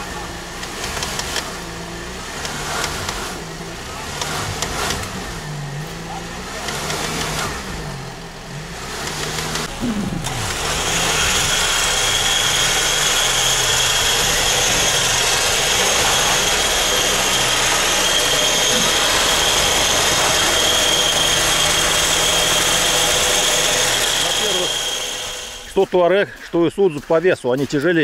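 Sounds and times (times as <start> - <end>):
vehicle engines running low: 0.0 - 28.0
electric winch whining: 9.1 - 25.8.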